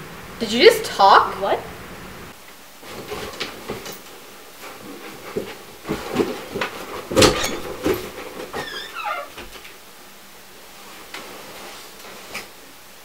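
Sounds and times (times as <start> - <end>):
bedding rustling: 2.6 - 13.0
bumps and knocks: 5.2 - 9.6.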